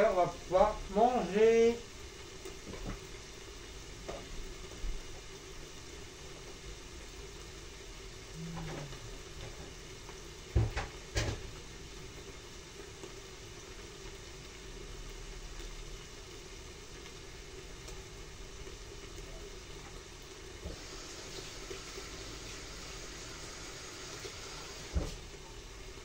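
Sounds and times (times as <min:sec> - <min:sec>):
steady low hum: 0:03.1 - 0:10.5.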